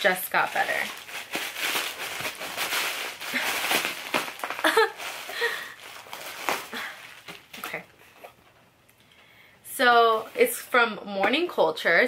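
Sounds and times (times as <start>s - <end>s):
cardboard and paper rustling: 0.0s - 7.9s.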